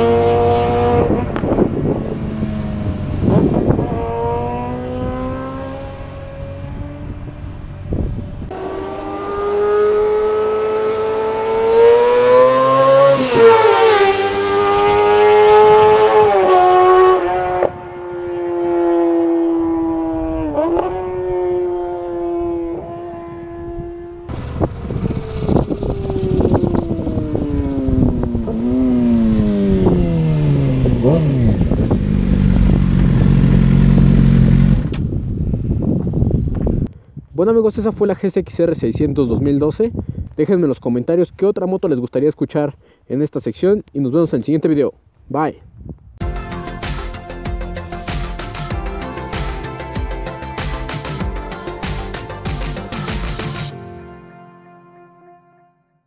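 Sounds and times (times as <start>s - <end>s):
wind buffeting microphone: 0.0s - 8.6s, 19.8s - 40.6s, 45.6s - 46.2s
motorcycle engine revving high: 0.0s - 35.6s
motorcycle engine slowing down: 24.2s - 36.6s.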